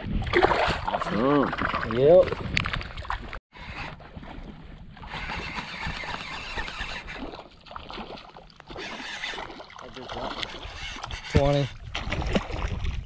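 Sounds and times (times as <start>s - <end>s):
wind rumble on microphone: 0.0s - 7.0s, 10.7s - 13.0s
small waves lapping: 2.7s - 13.0s.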